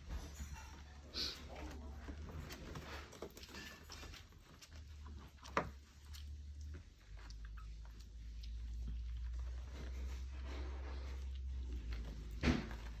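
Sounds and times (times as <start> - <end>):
puppies rustling and scrabbling: 0.0 - 13.0.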